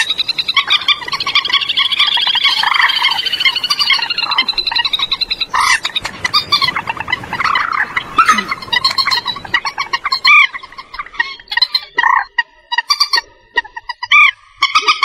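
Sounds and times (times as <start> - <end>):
moorhen croaking calls: 0.0 - 15.0
moorhen rattling chatter: 0.0 - 15.0.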